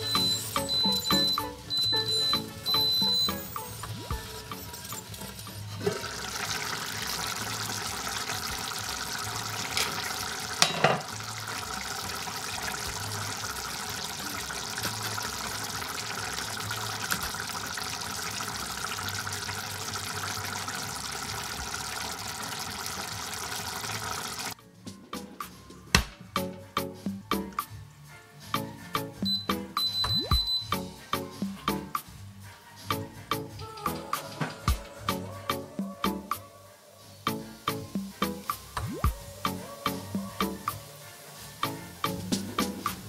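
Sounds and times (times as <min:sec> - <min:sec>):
sauce bubbling and spluttering: 0:00.0 - 0:24.6
pot clunk: 0:09.6 - 0:11.3.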